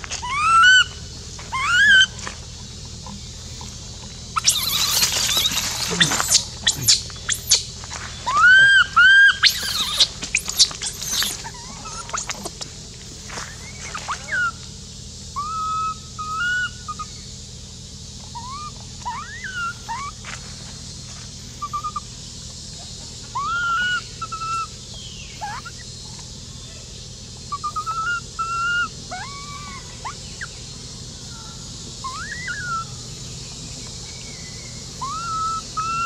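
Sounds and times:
infant monkey crying: 0:00.1 - 0:02.2, 0:04.4 - 0:07.6, 0:08.2 - 0:12.6, 0:13.5 - 0:14.6, 0:15.4 - 0:17.2, 0:18.3 - 0:20.2, 0:21.6 - 0:22.0, 0:23.3 - 0:24.8, 0:25.4 - 0:25.8, 0:27.5 - 0:30.6, 0:31.4 - 0:33.0, 0:35.0 - 0:36.0.

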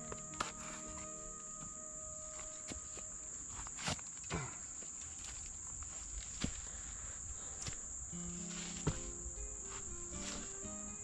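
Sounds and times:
crickets chirping: 0:00.0 - 0:11.0
footsteps in dry leaves: 0:08.2 - 0:10.8.

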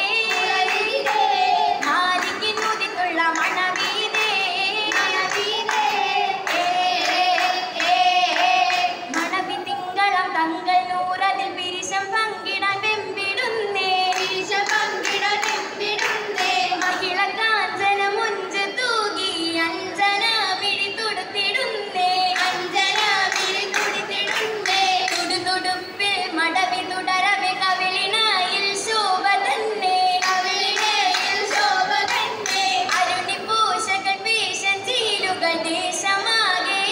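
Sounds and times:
rhythmic hand-clapping: 0:00.0 - 0:09.6, 0:13.8 - 0:17.5, 0:22.2 - 0:25.8, 0:29.8 - 0:34.0
girls singing in unison: 0:00.0 - 0:36.9.

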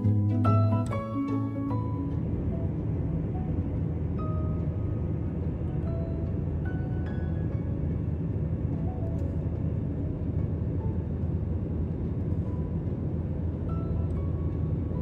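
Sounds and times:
airliner cabin roar: 0:00.0 - 0:15.0
soft background music: 0:00.0 - 0:15.0.

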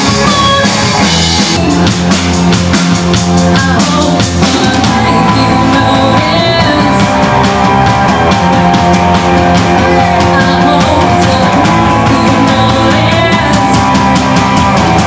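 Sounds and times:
drum kit beat: 0:00.0 - 0:15.0
electric guitars: 0:00.0 - 0:15.0
woman singing: 0:03.5 - 0:07.4, 0:09.9 - 0:14.0.

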